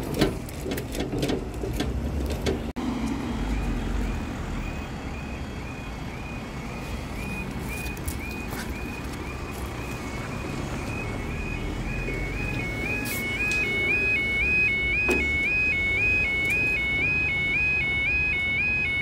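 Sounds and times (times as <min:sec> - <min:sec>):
road traffic rumble: 0:00.0 - 0:19.0
level crossing alarm beeping: 0:03.5 - 0:19.0.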